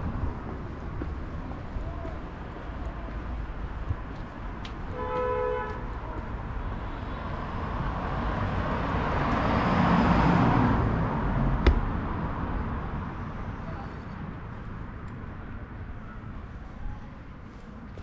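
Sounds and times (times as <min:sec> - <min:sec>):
street traffic: 0:00.0 - 0:18.0
car horn: 0:04.9 - 0:05.9
passing vehicle engine and tyres: 0:06.2 - 0:13.5.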